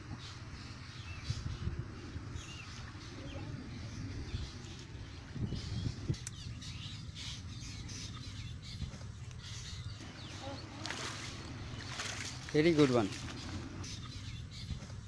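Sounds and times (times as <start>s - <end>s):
small birds chirping: 0.0s - 15.0s
person wading through water: 10.0s - 13.8s.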